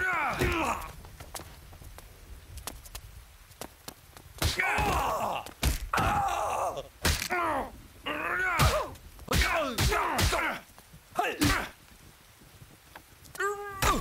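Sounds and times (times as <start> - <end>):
thuds of blows: 0.0 - 7.4, 8.5 - 10.7
man groaning in pain: 4.6 - 9.0.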